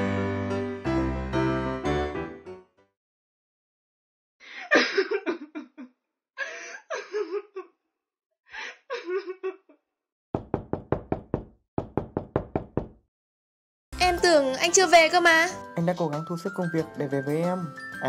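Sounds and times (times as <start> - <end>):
rapid knocking on a door: 10.4 - 13.0.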